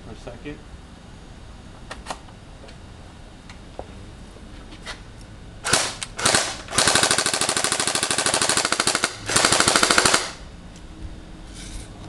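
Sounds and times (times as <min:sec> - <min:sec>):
airsoft rifle firing bursts: 0:05.6 - 0:10.4.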